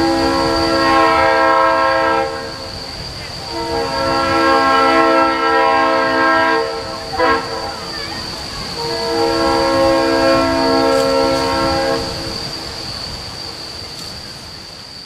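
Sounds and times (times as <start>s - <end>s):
locomotive air horn blasts: 0.0s - 2.8s, 3.4s - 7.9s, 8.8s - 12.3s.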